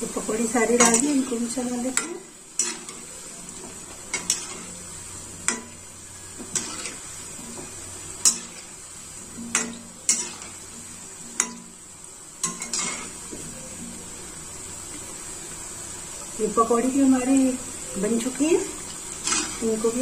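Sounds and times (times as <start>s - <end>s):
food sizzling in hot oil: 0.0s - 20.0s
metal spoon clinking against pan: 0.8s - 1.2s, 1.9s - 3.0s, 5.4s - 5.8s, 8.2s - 8.6s, 9.5s - 10.5s, 11.4s - 11.7s, 12.4s - 13.1s.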